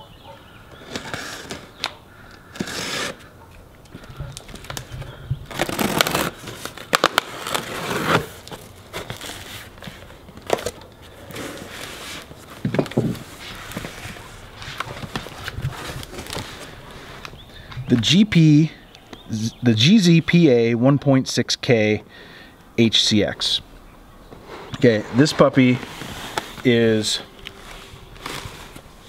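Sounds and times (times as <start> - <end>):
cardboard box flaps scraping: 7.3 - 9.7.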